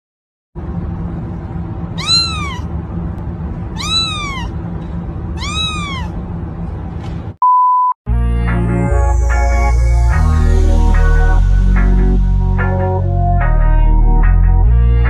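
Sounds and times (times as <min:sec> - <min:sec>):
kitten meowing: 0:02.0 - 0:02.7, 0:03.7 - 0:04.6, 0:05.4 - 0:06.2
short beep tone: 0:07.4 - 0:07.9
electronic music: 0:08.2 - 0:13.8.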